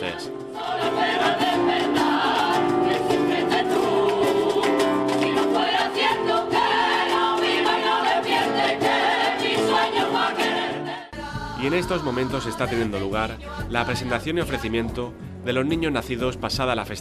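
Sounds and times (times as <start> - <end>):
acoustic guitar: 0.0 - 11.3
women's choir singing in unison: 0.0 - 14.6.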